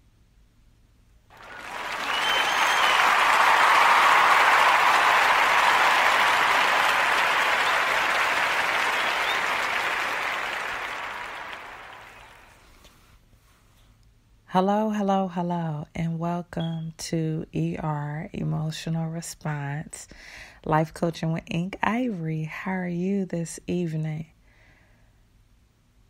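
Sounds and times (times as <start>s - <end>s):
crowd applause: 1.3s - 12.6s.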